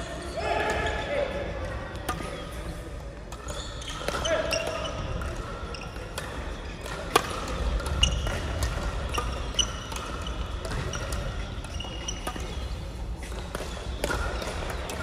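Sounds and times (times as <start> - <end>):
shoes squeaking on court floor: 3.3 - 15.0
racket strikes: 6.0 - 15.0.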